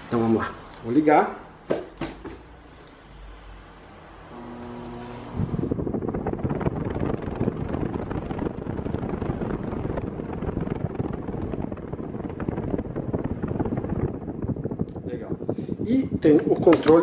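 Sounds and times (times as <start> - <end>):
table fan running: 3.6 - 17.0.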